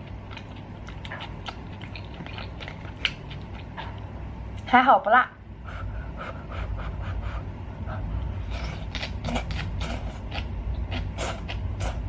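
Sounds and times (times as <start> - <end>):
chewing with wet smacks: 0.0 - 4.2, 8.4 - 12.0
low steady hum: 0.0 - 12.0.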